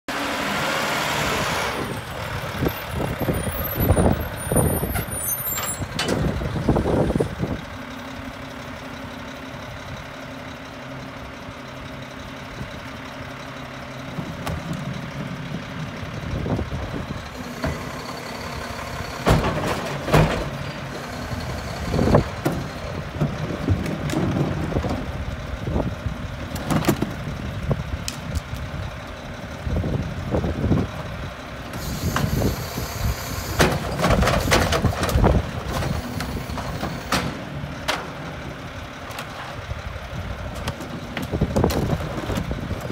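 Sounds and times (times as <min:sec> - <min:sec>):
diesel engine idling: 0:00.1 - 0:42.9
bins banging against hopper: 0:03.6 - 0:06.8, 0:17.4 - 0:25.1, 0:33.5 - 0:38.4
air brakes hissing: 0:31.8 - 0:33.8.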